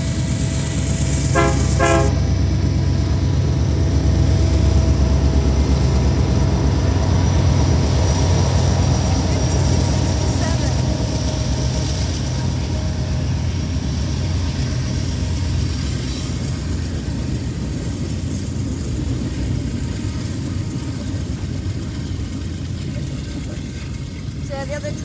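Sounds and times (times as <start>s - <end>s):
diesel locomotive engine rumble: 0.0s - 25.0s
train wheels rolling on rails: 0.0s - 25.0s.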